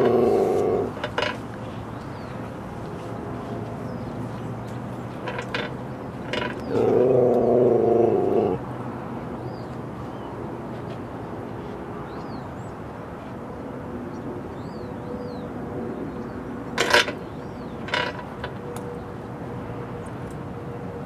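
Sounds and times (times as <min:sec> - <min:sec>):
dog low drawn-out vocalization: 0:00.0 - 0:01.1, 0:06.4 - 0:08.7
outdoor background noise: 0:00.0 - 0:21.0.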